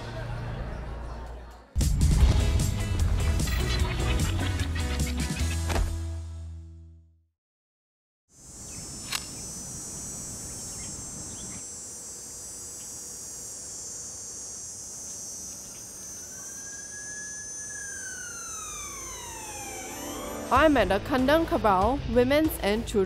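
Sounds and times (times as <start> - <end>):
crickets and insects chorus: 8.4 - 20.5
sharp click: 9.0 - 9.4
siren-like tone: 15.0 - 20.9.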